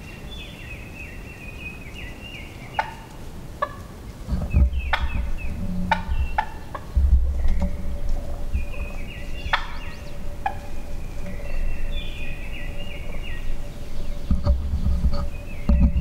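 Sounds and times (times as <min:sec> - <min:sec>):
wild turkeys calling: 0:00.0 - 0:16.0
low rumble: 0:04.2 - 0:16.0.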